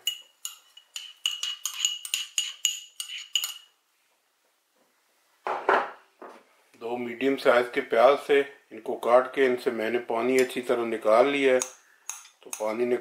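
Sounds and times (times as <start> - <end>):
metal spoon clinking ceramic bowl: 0.0 - 3.7.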